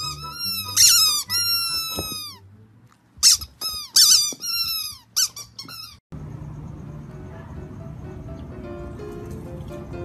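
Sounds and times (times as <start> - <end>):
squeaky dog toy squeaking: 0.0 - 2.5, 3.2 - 6.0.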